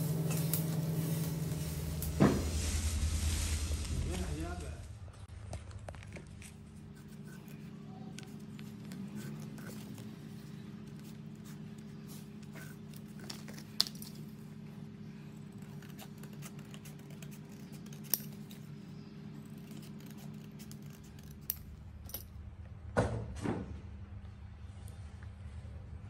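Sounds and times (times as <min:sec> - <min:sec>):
shears snipping paper: 0:00.0 - 0:02.4, 0:06.3 - 0:14.5, 0:15.2 - 0:21.7
scraping rustle: 0:00.0 - 0:04.9
steady low hum: 0:00.0 - 0:26.0.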